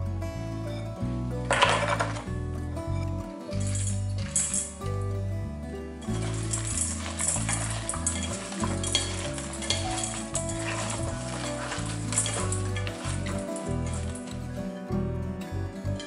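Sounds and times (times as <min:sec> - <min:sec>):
background music with bass: 0:00.0 - 0:16.0
vegetables rustling in metal bowl: 0:01.5 - 0:02.3, 0:03.5 - 0:04.8, 0:06.0 - 0:14.6.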